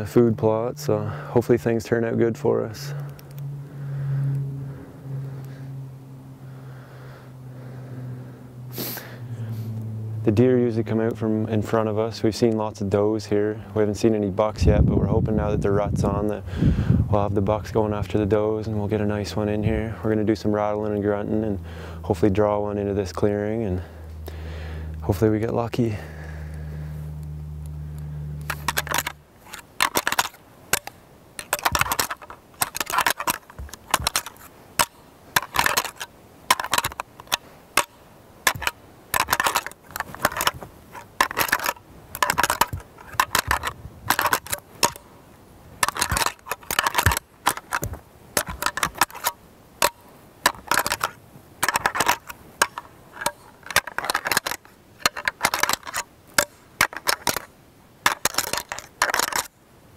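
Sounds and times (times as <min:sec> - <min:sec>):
antlers clacking together: 0:28.4 - 0:45.0, 0:45.8 - 0:59.5.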